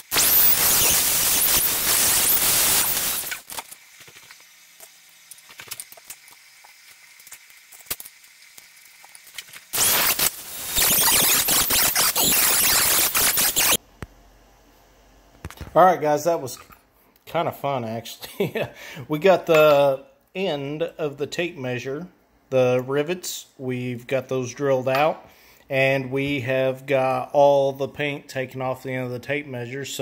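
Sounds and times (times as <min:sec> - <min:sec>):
rotary tool grinding metal: 0:00.2 - 0:13.8.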